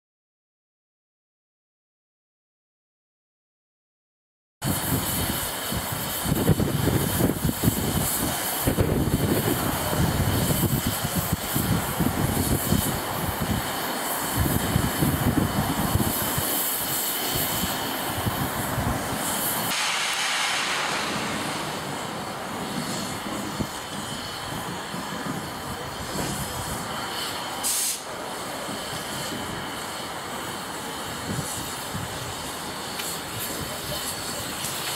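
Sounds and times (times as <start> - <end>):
steam locomotive hissing: 4.6 - 34.9
heavy low rumble: 19.7 - 27.0.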